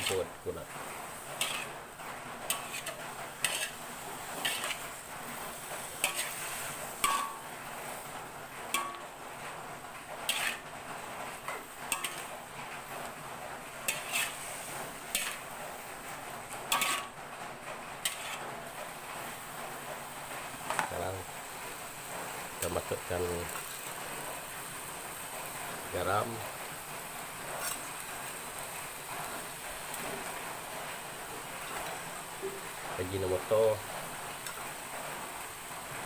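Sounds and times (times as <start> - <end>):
spatula scraping a wok: 0.0 - 20.8, 27.4 - 32.9
food sizzling: 0.0 - 36.0.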